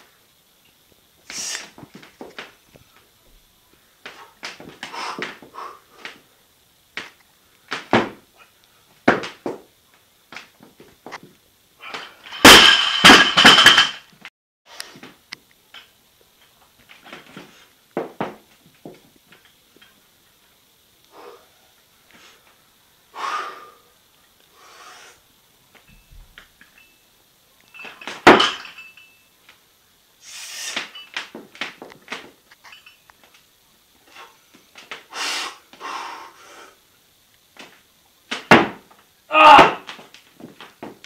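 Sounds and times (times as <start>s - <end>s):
knocks and thuds of bar and plates: 7.7s - 8.2s, 11.9s - 14.1s, 27.8s - 28.9s, 38.3s - 41.0s
weight plates crashing on floor: 11.9s - 14.1s, 27.8s - 29.0s, 38.4s - 38.8s, 39.4s - 40.0s.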